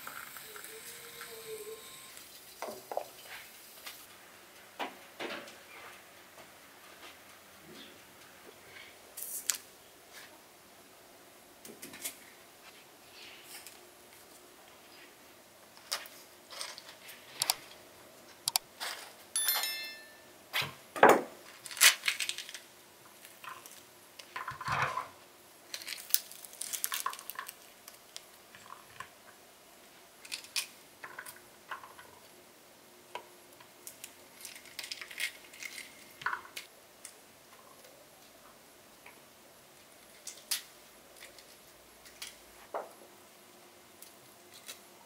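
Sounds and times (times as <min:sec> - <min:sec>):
ringing clink: 0:19.4 - 0:20.3.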